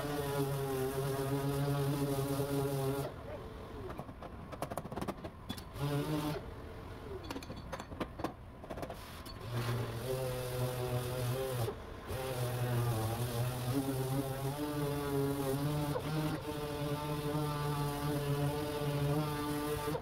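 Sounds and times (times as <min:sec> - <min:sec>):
orbital sander humming: 0:00.0 - 0:03.1, 0:09.5 - 0:20.0.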